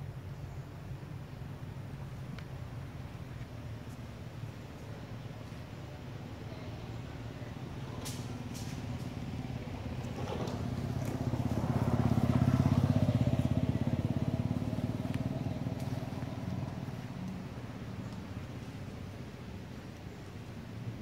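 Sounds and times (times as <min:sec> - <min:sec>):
motorbike engine passing by: 0:08.2 - 0:17.2.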